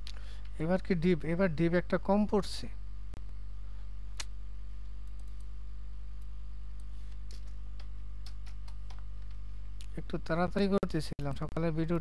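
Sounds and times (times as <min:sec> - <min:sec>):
low electrical hum: 0:00.0 - 0:12.0
keyboard and mouse clicks: 0:06.2 - 0:09.4.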